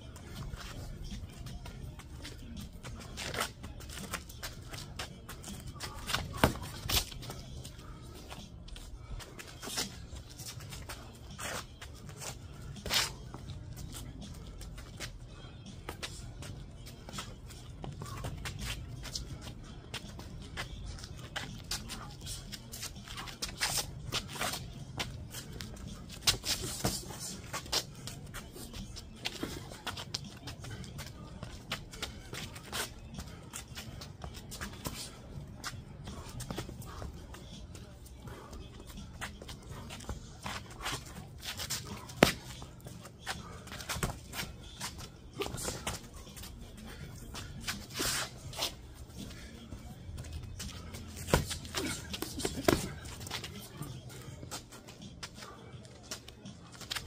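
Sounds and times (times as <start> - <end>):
feet shuffling on paving stones: 0.0 - 57.0
gloves and shin guards hitting: 2.6 - 7.8, 38.3 - 46.6, 50.2 - 53.5.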